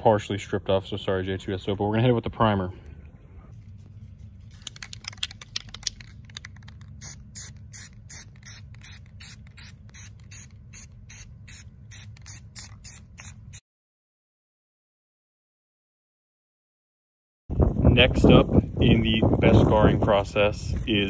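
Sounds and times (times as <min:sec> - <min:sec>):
steady low hum: 0:00.0 - 0:13.6
aerosol can rattling bursts: 0:04.5 - 0:13.6.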